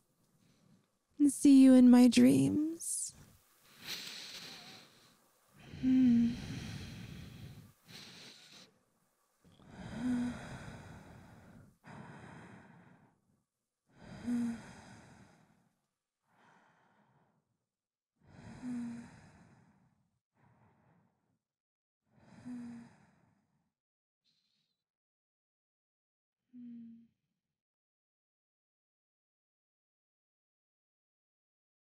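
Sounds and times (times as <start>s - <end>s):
woman breathing sleepily: 3.6s - 8.8s, 9.5s - 13.3s, 13.9s - 17.5s, 18.2s - 21.3s, 22.2s - 23.6s
woman sighing with a hum: 5.6s - 7.0s, 26.6s - 27.1s.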